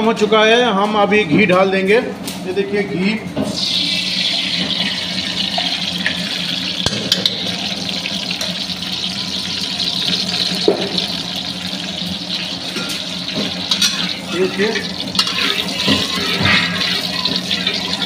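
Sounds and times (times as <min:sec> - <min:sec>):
ghee sizzling in a pan: 0:03.6 - 0:18.0.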